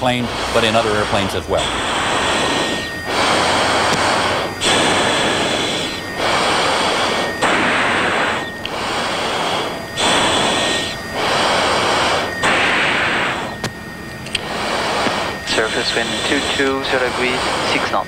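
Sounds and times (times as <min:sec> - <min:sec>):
pilot heavy breathing: 0:00.0 - 0:18.0.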